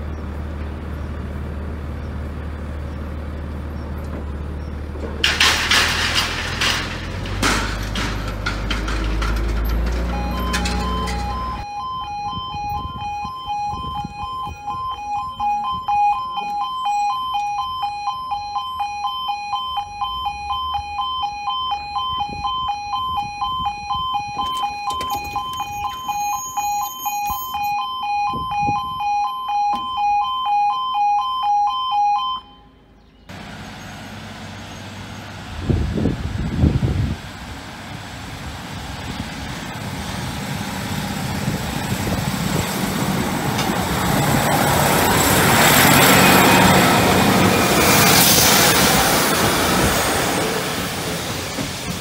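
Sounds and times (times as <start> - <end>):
level crossing alarm two-tone: 10.1 - 32.7.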